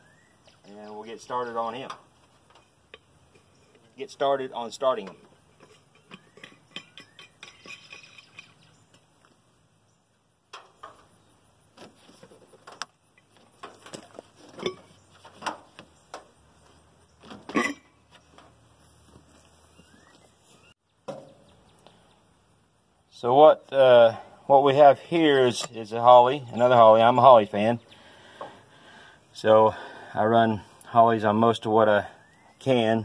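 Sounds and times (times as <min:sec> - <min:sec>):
light metal clinks and knocks: 0:01.9 - 0:03.9, 0:04.9 - 0:09.1.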